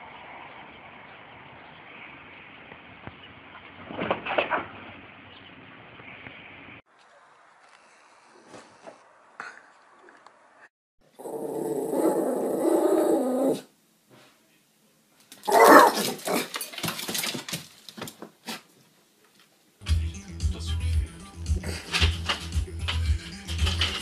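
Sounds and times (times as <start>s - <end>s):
dog growling: 11.2s - 13.7s
dog barking: 15.5s - 16.4s.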